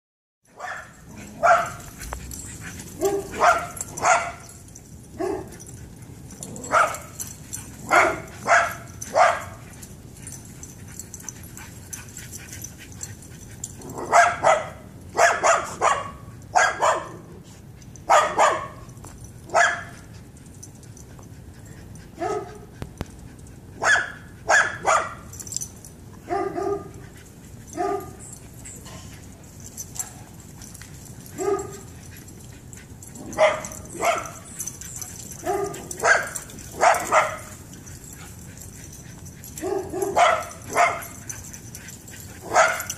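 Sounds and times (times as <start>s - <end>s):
dog barking: 0.6s - 1.8s, 3.0s - 4.5s, 5.2s - 5.5s, 6.6s - 7.1s, 7.8s - 9.6s, 13.9s - 17.3s, 18.1s - 18.8s, 19.5s - 19.9s, 22.2s - 22.6s, 23.8s - 25.2s, 26.3s - 27.0s, 27.8s - 28.2s, 31.4s - 31.8s, 33.2s - 34.5s, 35.4s - 37.6s, 39.6s - 41.2s, 42.4s - 42.9s.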